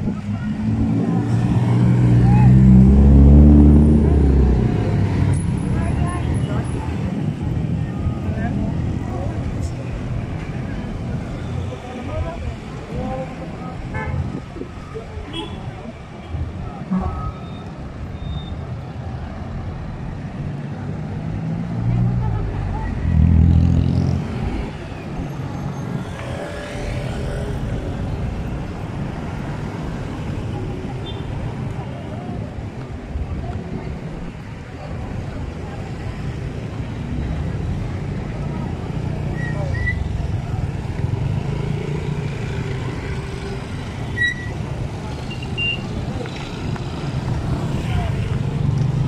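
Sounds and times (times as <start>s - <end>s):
street traffic: 0.0s - 49.0s
vehicle engines running: 19.0s - 49.0s.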